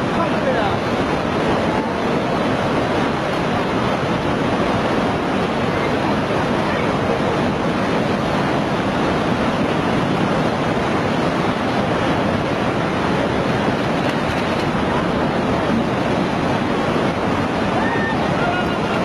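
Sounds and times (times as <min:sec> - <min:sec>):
churning water rushing: 0:00.0 - 0:19.0.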